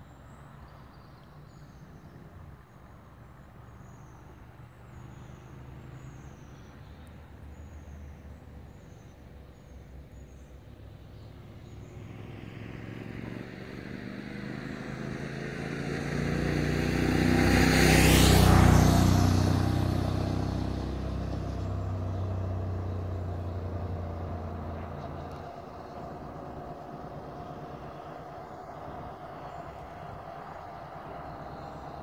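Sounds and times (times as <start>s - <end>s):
vehicle driving past: 11.2s - 32.0s.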